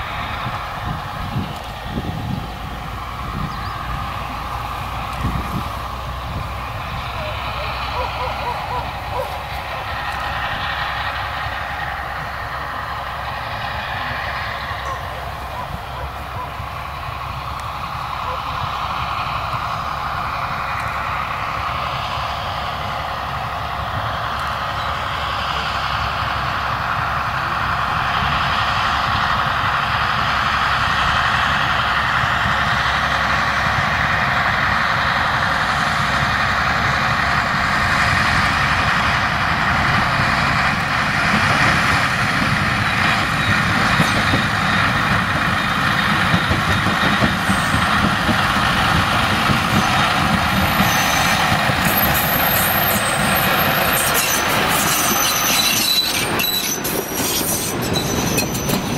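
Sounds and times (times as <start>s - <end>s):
diesel locomotive engine running: 0.0s - 58.9s
high wheel squeal: 3.1s - 11.2s, 45.5s - 48.0s, 49.6s - 58.9s
wheels knocking on rails: 35.3s - 58.9s.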